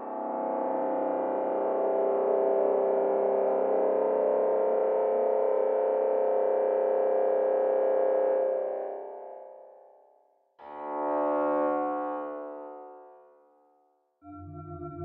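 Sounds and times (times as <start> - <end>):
sustained synth pad chord: 14.2 - 15.0.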